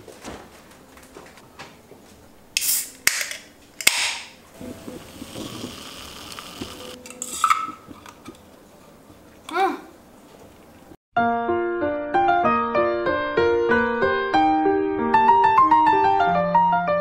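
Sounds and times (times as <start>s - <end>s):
can pull tab cracking with hiss: 2.6s - 8.4s
can handling noise: 2.6s - 8.6s
soda fizzing: 4.5s - 9.5s, 10.1s - 11.0s
metal straw clinking into can: 5.4s - 8.4s.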